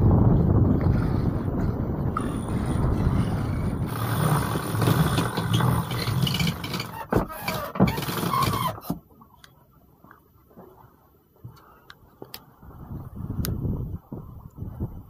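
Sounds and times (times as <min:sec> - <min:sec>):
wind and water noise: 0:00.0 - 0:15.0
winch clicking: 0:03.9 - 0:09.0.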